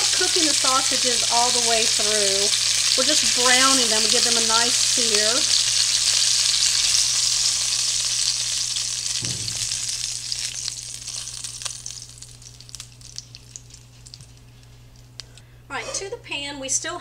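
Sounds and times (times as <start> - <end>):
oil sizzling in a skillet: 0.0 - 15.2
soft low thump: 9.2 - 9.9.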